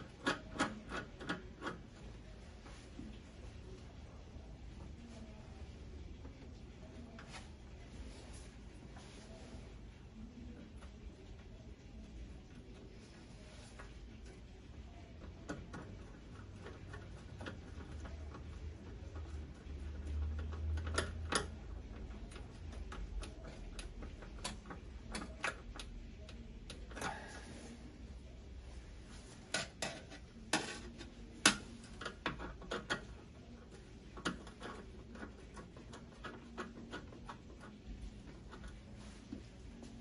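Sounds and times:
wires rustling: 0.0s - 40.0s
light clicks and taps: 15.2s - 27.1s.

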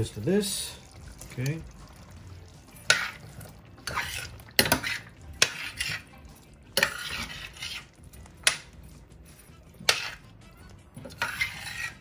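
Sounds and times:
metal spoon scraping a pan: 2.4s - 12.0s
spoon clanking on pan: 2.7s - 7.8s, 8.4s - 8.8s, 9.8s - 10.2s.

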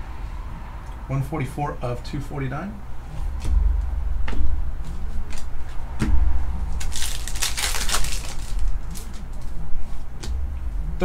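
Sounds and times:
plastic wrapper crinkling: 6.8s - 9.5s.

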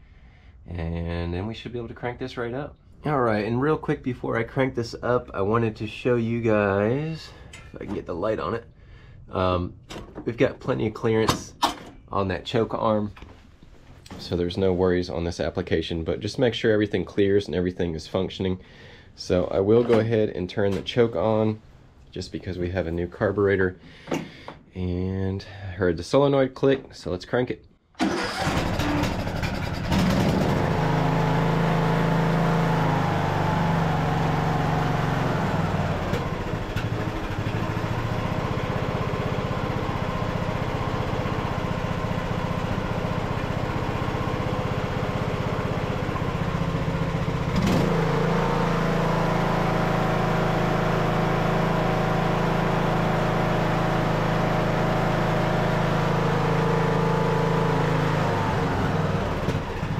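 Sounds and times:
riding mower engine running: 28.0s - 59.9s.

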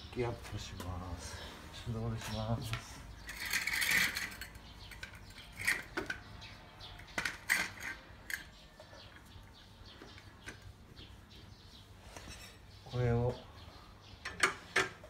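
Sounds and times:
jack scraping on concrete: 3.1s - 8.6s
metallic clicks and clinks: 3.2s - 6.3s.

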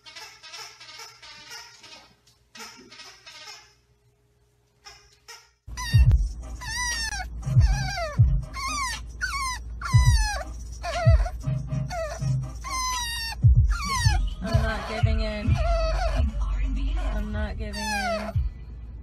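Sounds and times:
puppy whining: 4.9s - 18.5s
car rumble: 5.8s - 19.0s.

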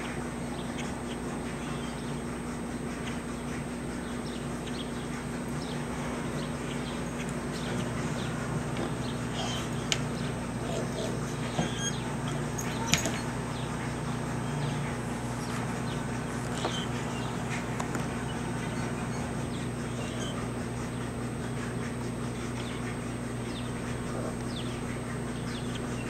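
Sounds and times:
steady low hum: 0.0s - 26.0s
faint bird chirps: 4.0s - 20.5s.

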